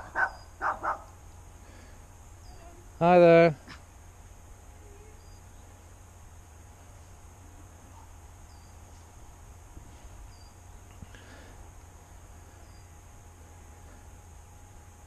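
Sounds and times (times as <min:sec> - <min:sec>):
small birds chirping: 0:00.0 - 0:06.1, 0:06.8 - 0:09.2, 0:10.1 - 0:11.4, 0:12.3 - 0:13.1.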